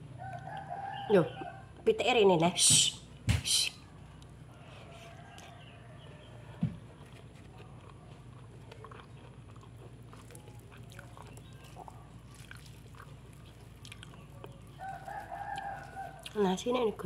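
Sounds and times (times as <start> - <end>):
low steady hum: 0.0 - 17.0
person chewing food: 6.8 - 16.4.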